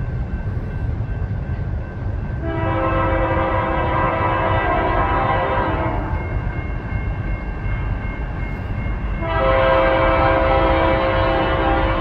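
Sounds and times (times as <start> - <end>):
low train rumble: 0.0 - 12.0
locomotive air horn: 2.4 - 6.1, 9.2 - 12.0.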